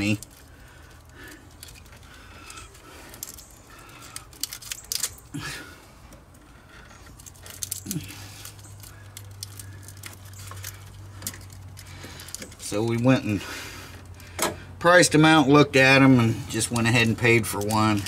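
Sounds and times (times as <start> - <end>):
small clicks and rustles: 0.0 - 5.4, 6.0 - 13.3
hands handling wiring harness: 0.0 - 14.6, 15.9 - 18.0.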